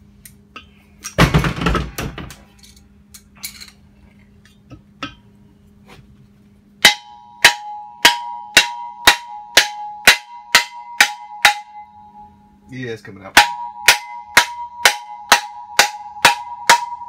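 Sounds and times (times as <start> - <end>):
hammer striking metal shaft: 6.8 - 12.4, 13.2 - 17.0.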